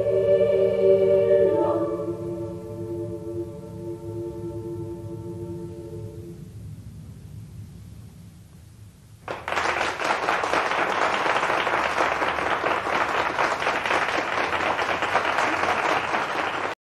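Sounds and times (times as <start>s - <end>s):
audience applause: 9.2s - 16.8s.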